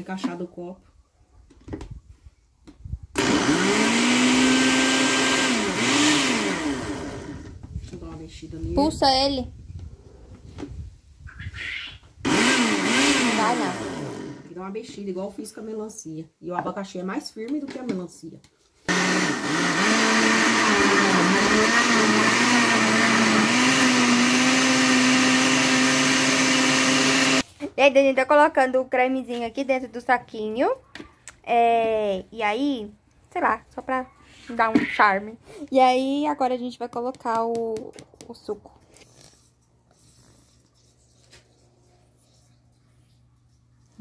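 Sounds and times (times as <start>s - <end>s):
blender motor whining: 3.2s - 7.6s, 12.2s - 14.5s, 18.9s - 27.4s.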